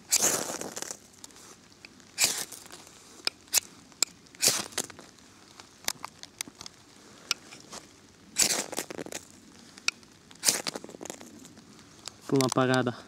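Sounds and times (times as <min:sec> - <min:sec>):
knife rasping on firesteel: 0:02.2 - 0:02.5, 0:04.4 - 0:04.8, 0:08.4 - 0:08.8, 0:10.4 - 0:10.8
light clicks and taps: 0:12.0 - 0:12.9.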